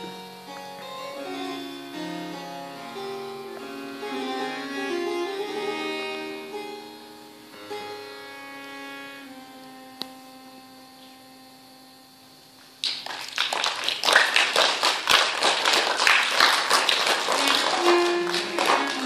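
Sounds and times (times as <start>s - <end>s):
held musical note: 0.0s - 11.6s, 17.3s - 19.0s
bowed viola da gamba notes: 0.0s - 12.8s, 17.3s - 19.0s
audience clapping: 12.8s - 19.0s.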